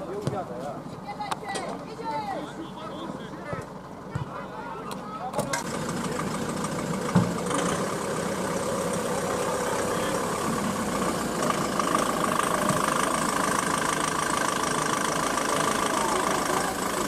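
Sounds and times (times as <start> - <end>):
steady mechanical drone: 5.6 - 17.0.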